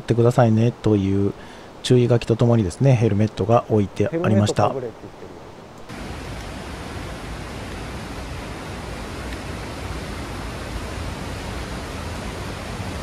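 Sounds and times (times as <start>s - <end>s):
river rushing: 4.2s - 13.0s.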